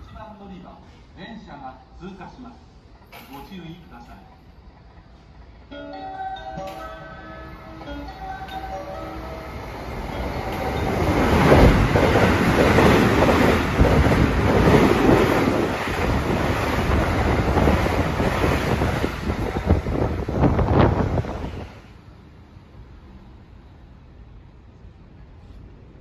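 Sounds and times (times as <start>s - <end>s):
train rushing past: 3.7s - 24.7s
wind buffeting microphone: 10.0s - 21.9s.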